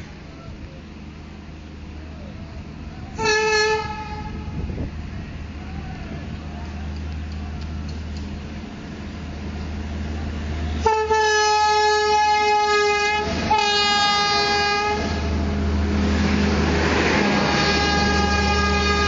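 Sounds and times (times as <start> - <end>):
train coaches rushing past: 0.0 - 19.0
train horn blasts: 3.1 - 4.8, 10.6 - 15.4, 17.3 - 19.0.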